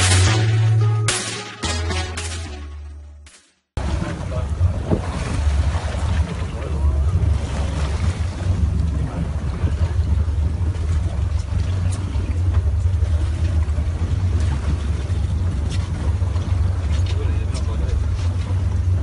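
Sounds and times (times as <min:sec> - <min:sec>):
boat engine rumble: 0:00.0 - 0:19.0
wind buffeting microphone: 0:03.8 - 0:19.0.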